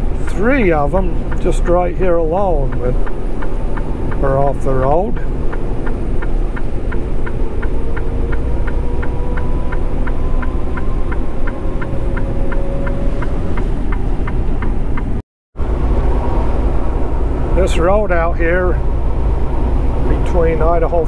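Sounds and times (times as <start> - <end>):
engine and road rumble: 0.0 - 21.0
light regular ticking: 0.1 - 15.2.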